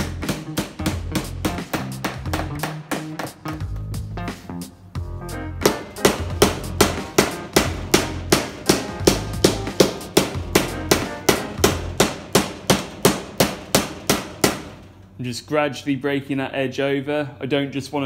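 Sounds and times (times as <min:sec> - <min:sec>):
hammer striking sheet metal: 0:00.0 - 0:03.6, 0:05.6 - 0:15.0.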